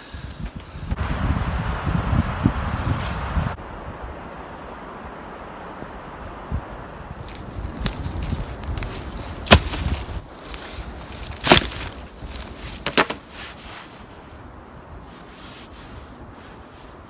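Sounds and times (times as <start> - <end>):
wooden poles knocking on a pile: 11.2 - 13.2.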